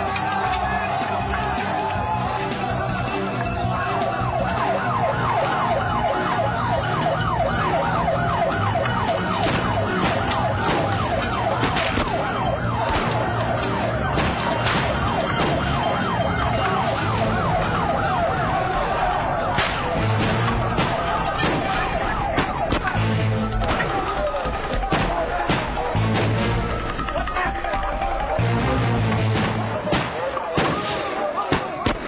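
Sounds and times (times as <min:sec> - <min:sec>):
ambulance siren wailing: 0:00.0 - 0:31.9
sharp bangs: 0:08.8 - 0:27.2.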